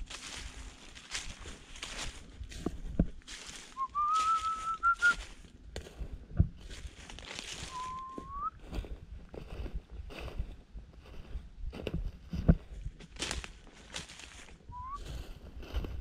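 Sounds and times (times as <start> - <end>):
leaves crunching underfoot: 0.0 - 11.3, 12.8 - 16.0
man whistling: 3.8 - 5.2, 7.7 - 8.6, 14.7 - 15.0.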